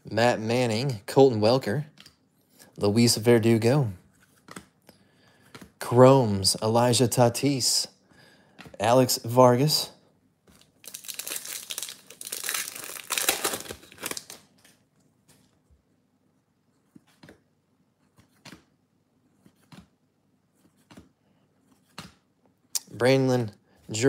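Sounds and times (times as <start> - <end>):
foil wrapper crinkling and tearing: 10.6 - 14.8.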